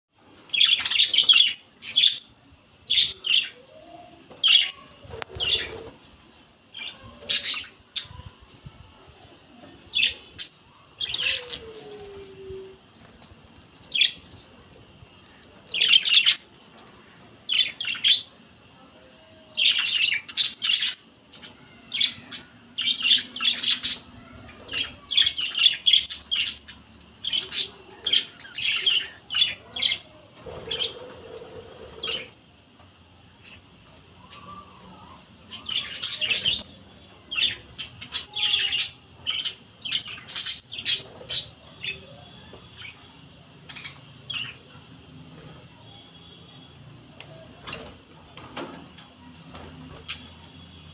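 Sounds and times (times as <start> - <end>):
budgerigars chirping and squawking: 4.3 - 6.0, 19.6 - 32.4, 34.2 - 36.7.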